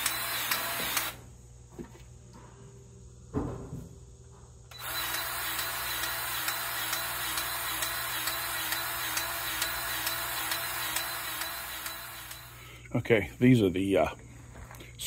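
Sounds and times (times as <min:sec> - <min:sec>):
cordless grease gun clicking: 0:00.0 - 0:01.2, 0:04.7 - 0:12.5.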